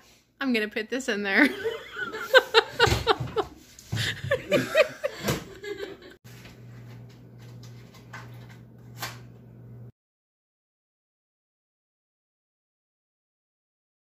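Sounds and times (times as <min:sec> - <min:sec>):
people laughing: 0:01.4 - 0:06.2.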